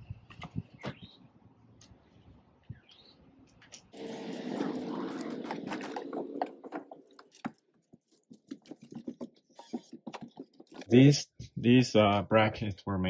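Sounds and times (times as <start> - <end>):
plastic panel scraping and crackling: 4.0 - 11.0.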